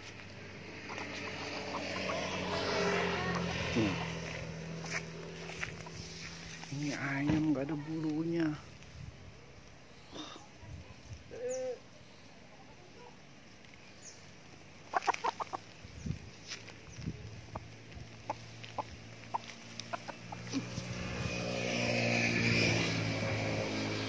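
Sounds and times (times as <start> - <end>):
chicken clucking: 0.8 - 4.3, 14.8 - 15.8, 17.5 - 20.9.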